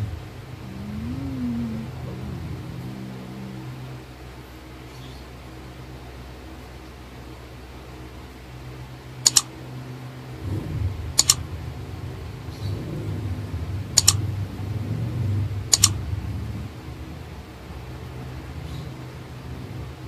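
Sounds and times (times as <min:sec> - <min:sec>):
low uneven rumble: 0:00.0 - 0:20.0
double mouse clicks: 0:09.3 - 0:09.5, 0:11.2 - 0:11.4, 0:14.0 - 0:14.2, 0:15.7 - 0:15.9.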